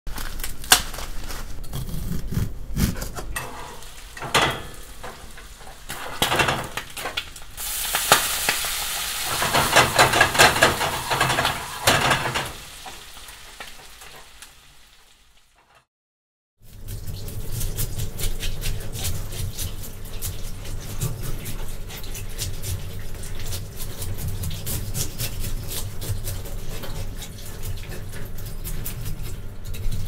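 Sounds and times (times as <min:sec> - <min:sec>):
food sizzling in butter: 0:03.4 - 0:15.7.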